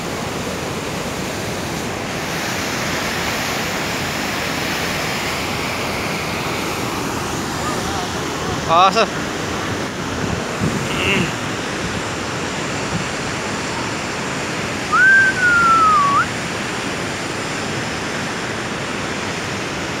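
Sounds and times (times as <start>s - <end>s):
waterfall rushing: 0.0s - 20.0s
gliding whistle: 14.9s - 16.4s.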